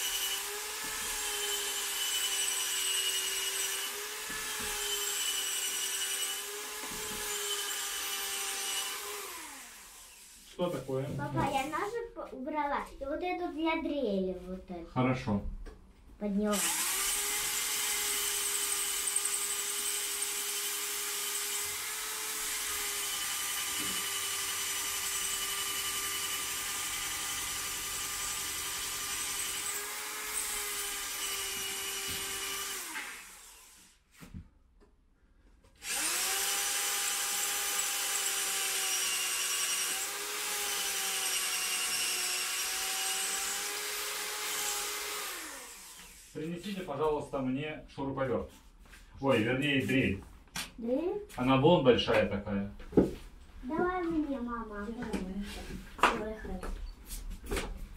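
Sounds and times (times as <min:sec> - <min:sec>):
electric drill drilling into wall: 0:00.0 - 0:10.5, 0:16.5 - 0:34.0, 0:35.8 - 0:46.5.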